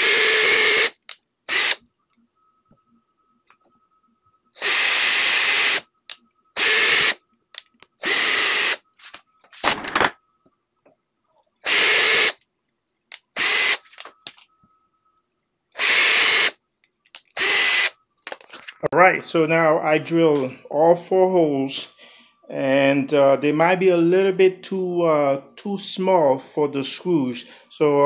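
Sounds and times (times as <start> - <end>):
cordless drill whining: 0.0 - 1.8, 4.6 - 5.9, 6.6 - 7.2, 8.0 - 8.9, 11.6 - 12.4, 13.3 - 14.1, 15.7 - 16.6, 17.2 - 18.0.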